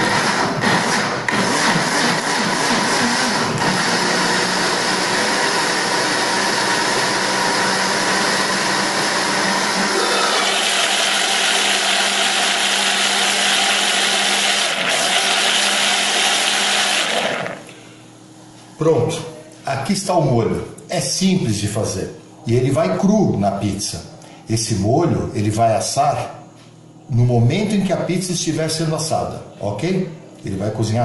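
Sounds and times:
electric blender running: 0.0 - 17.8.

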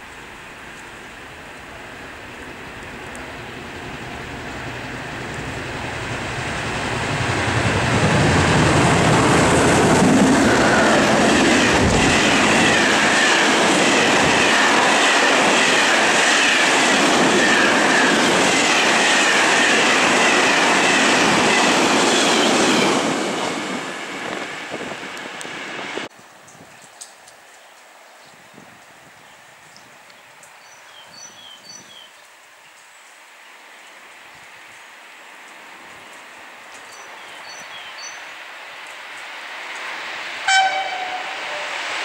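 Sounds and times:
freight train rumble and clatter: 0.1 - 26.1, 35.9 - 42.0.

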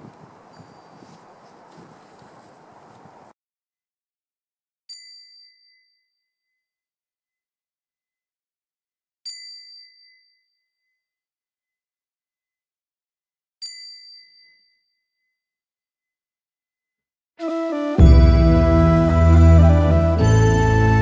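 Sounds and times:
small high-pitched metal bell: 4.9 - 6.8, 9.3 - 11.2, 13.6 - 15.6.

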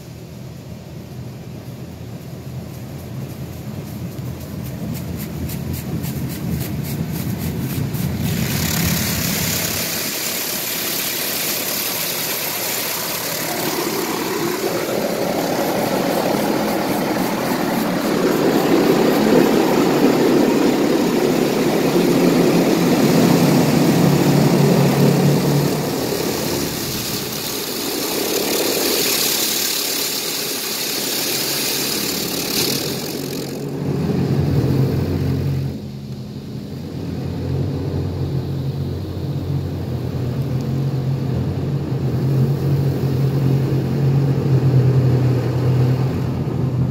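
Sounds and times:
water jets drumming on a car: 1.2 - 34.2.

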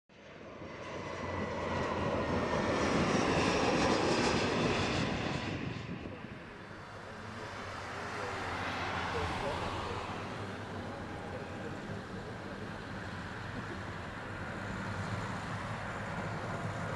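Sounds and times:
jet engine roar: 0.2 - 16.9.

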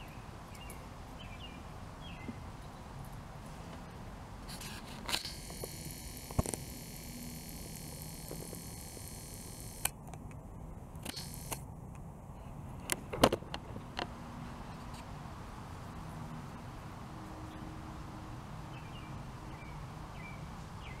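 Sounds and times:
camera clicks: 4.5 - 10.0, 11.0 - 11.6
zoom lens motor whirring: 4.5 - 10.0, 11.0 - 11.6.

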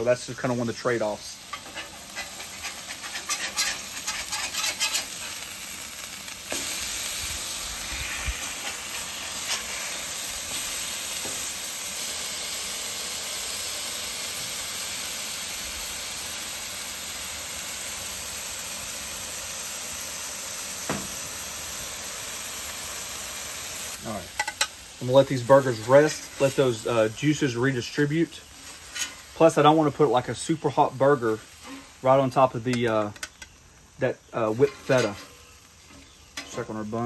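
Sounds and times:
meat sizzling on griddle: 0.0 - 37.0
spatula clicks and scrapes: 1.5 - 5.3.

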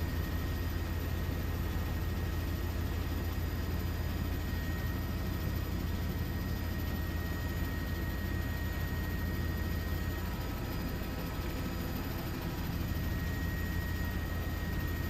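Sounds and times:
aircraft engine drone: 0.0 - 15.0
faint high whine: 0.0 - 15.0.

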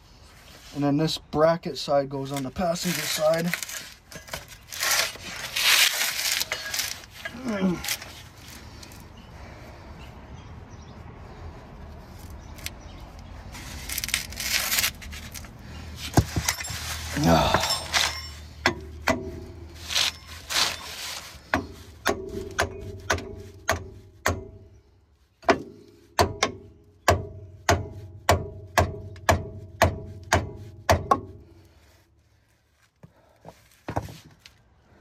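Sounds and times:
rustle: 2.4 - 9.3, 12.0 - 18.6, 19.5 - 23.6.

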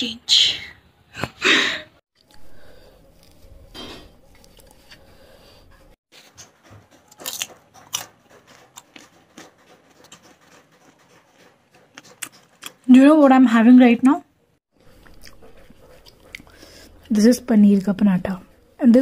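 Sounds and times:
person chewing food: 2.2 - 12.9, 14.8 - 17.1.

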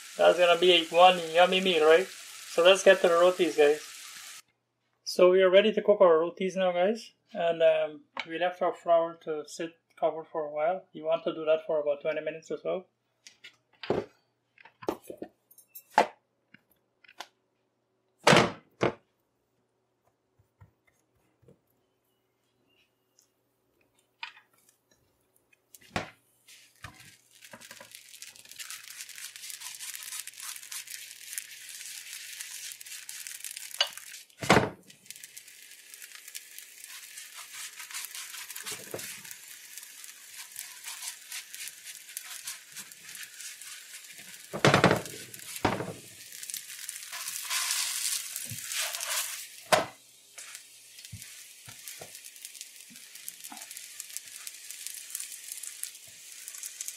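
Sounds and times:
oil sizzling in a pan: 0.0 - 4.4, 25.8 - 56.9.

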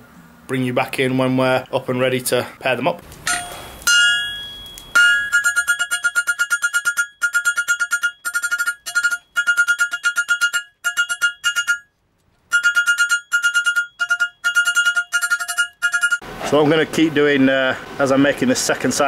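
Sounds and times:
hammer striking metal on anvil: 3.3 - 11.9.

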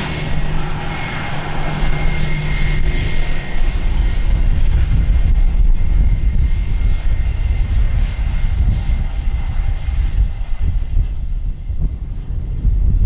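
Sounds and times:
jet engines at takeoff power: 0.0 - 13.0.

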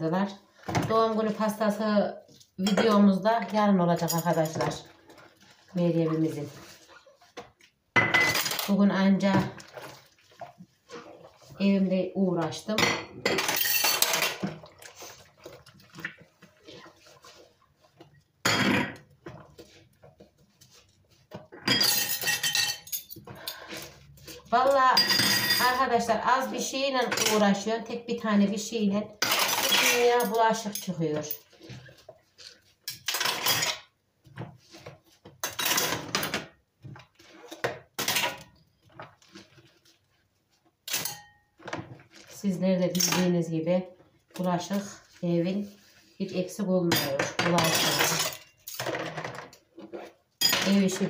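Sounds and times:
dishes splashing and scrubbing: 2.3 - 27.6
water splashing in bowl: 9.4 - 11.6, 14.0 - 18.4
utensils clinking: 12.9 - 14.5, 21.6 - 23.9, 40.9 - 41.4, 46.9 - 49.4, 50.4 - 51.0
sponge scrubbing: 14.9 - 18.2.

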